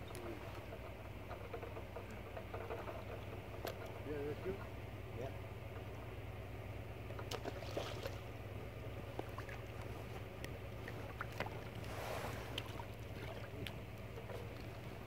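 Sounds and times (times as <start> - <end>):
steady low hum: 0.0 - 15.0
swirl of water: 6.8 - 15.0
fish splashing at water surface: 7.2 - 8.4.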